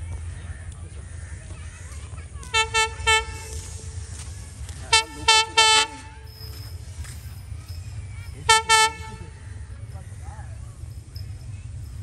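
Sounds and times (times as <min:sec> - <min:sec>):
low train rumble: 0:00.0 - 0:12.0
train horn toots: 0:02.4 - 0:06.6, 0:08.3 - 0:09.7.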